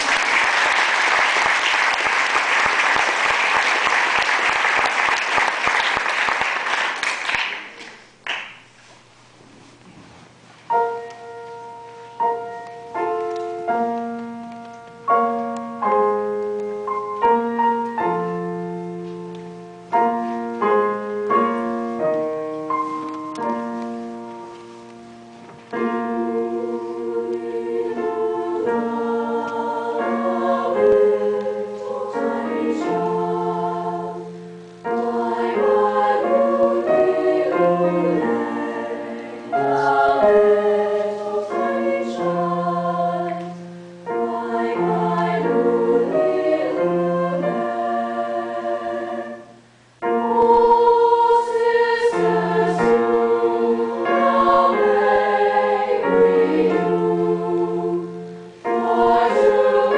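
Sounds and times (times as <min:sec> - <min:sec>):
piano notes and chords: 0:10.6 - 0:59.9
women's choir singing: 0:25.8 - 0:59.9.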